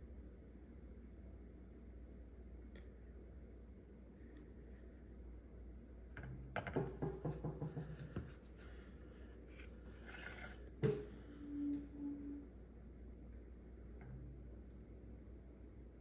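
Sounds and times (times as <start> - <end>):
light clicks and scrapes: 9.5 - 10.7.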